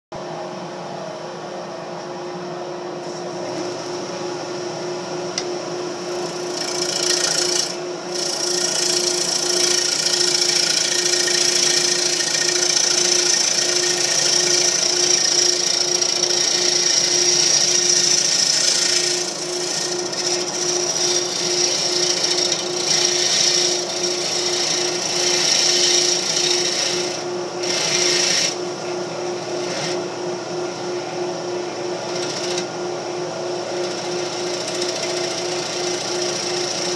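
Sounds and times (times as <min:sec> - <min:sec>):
wood lathe pulsing hum: 0:03.0 - 0:36.9
tool hissing on wood: 0:06.0 - 0:28.6.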